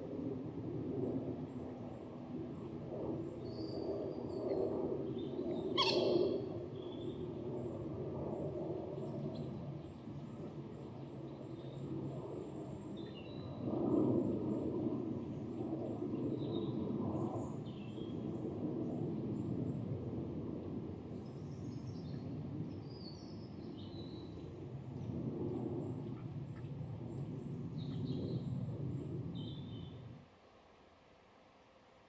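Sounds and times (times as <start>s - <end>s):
faint bird chirps: 5.6s - 7.2s
loud bird call: 5.8s - 6.5s.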